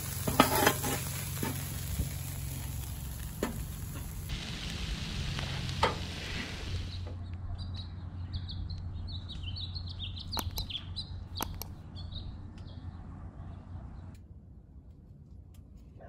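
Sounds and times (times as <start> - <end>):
small birds chirping: 6.7 - 14.2
sharp clicks: 10.3 - 11.8.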